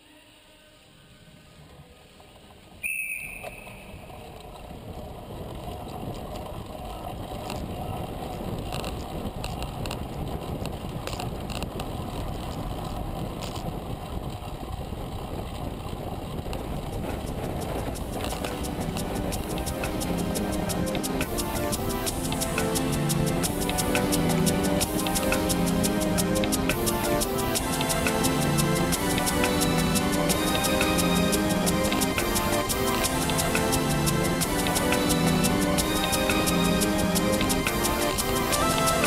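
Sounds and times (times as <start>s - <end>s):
wind rushing over camera: 1.4s - 39.0s
brief high tone: 2.8s - 4.2s
bike tyres rumbling on wooden boards: 3.5s - 29.2s.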